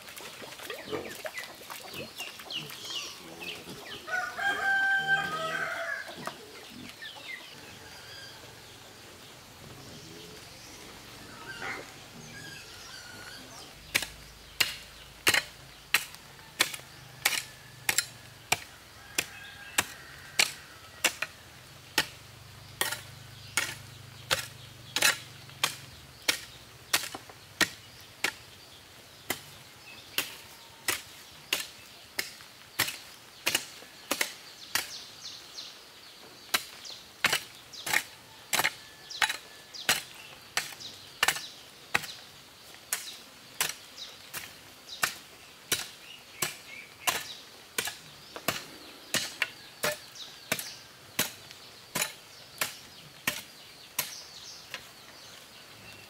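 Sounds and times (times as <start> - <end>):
rhythmic chopping strikes: 13.8 - 18.7.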